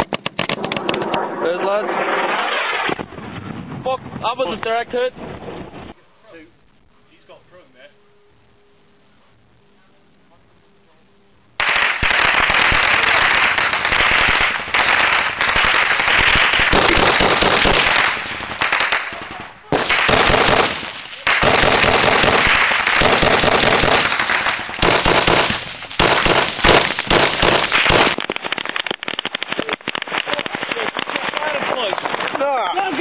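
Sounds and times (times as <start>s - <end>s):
rapid rifle fire: 0.0s - 1.2s, 11.6s - 32.4s.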